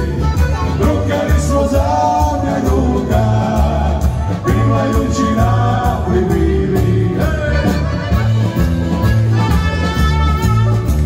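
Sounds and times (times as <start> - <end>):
man singing: 0.0 - 8.3
dance band playing: 0.0 - 11.0.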